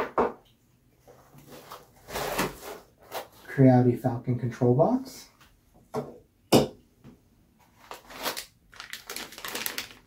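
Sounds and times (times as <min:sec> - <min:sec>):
plastic bag crinkling: 0:07.7 - 0:10.0.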